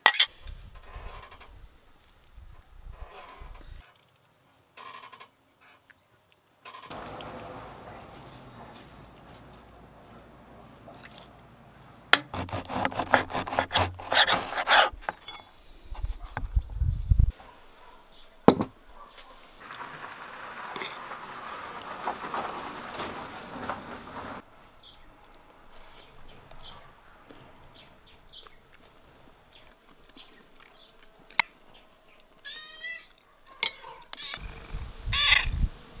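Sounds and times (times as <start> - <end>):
knife sawing through bread crust: 12.3 - 15.0
cat meowing: 32.4 - 33.1.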